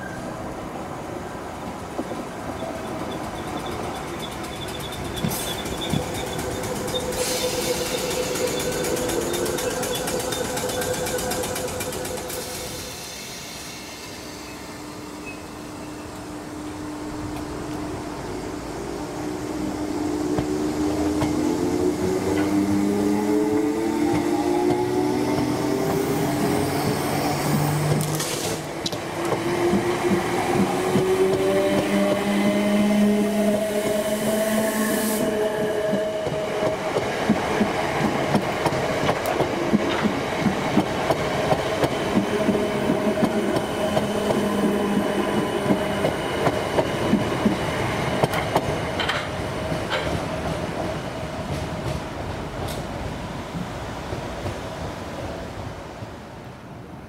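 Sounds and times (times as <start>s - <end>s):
electric train clattering: 1.7s - 14.3s, 16.6s - 34.6s, 35.2s - 54.8s
electric train motors humming: 2.9s - 13.0s.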